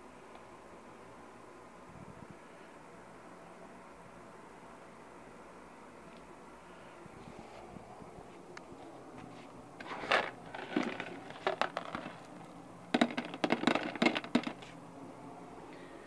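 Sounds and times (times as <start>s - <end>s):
food pieces rattling into dish: 9.8s - 14.6s.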